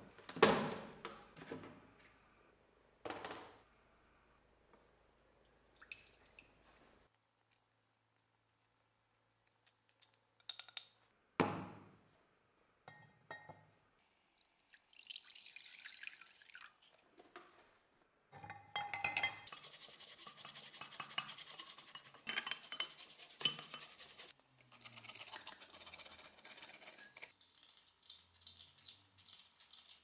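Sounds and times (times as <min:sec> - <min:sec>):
water pouring into basin: 0:14.3 - 0:17.0.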